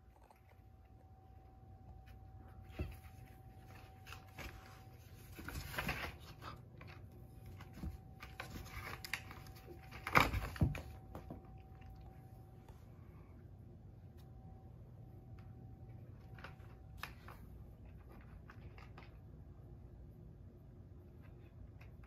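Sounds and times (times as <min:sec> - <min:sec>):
cats scratching cardboard: 0:01.9 - 0:11.3.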